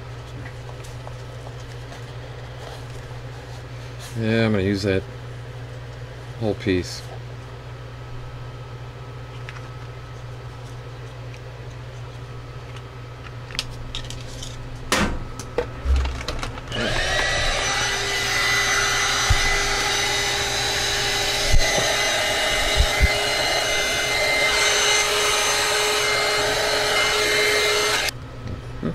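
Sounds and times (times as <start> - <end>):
heat gun running: 16.6 - 28.1.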